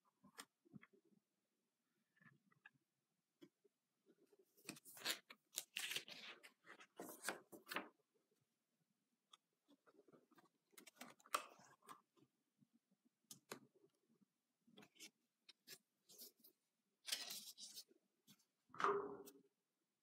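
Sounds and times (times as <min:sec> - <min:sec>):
paper pages rustling: 0:04.6 - 0:07.9, 0:14.8 - 0:17.9.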